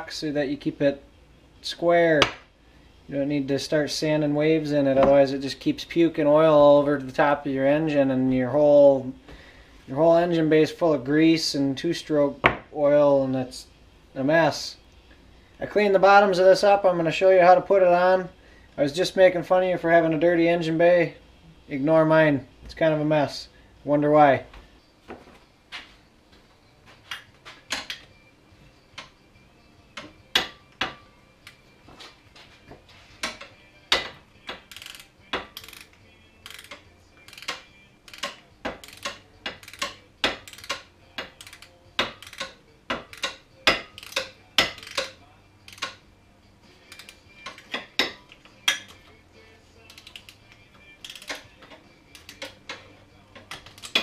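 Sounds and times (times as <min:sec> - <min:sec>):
socket ratchet clicking: 0:33.2 - 0:46.0, 0:46.9 - 0:49.1, 0:49.8 - 0:54.0.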